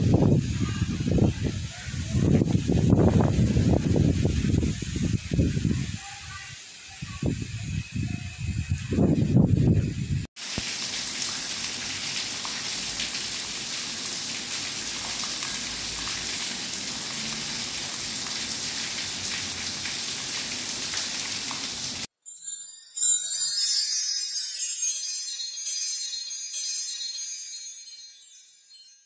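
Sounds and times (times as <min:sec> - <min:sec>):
steady rain falling: 0:10.4 - 0:22.1.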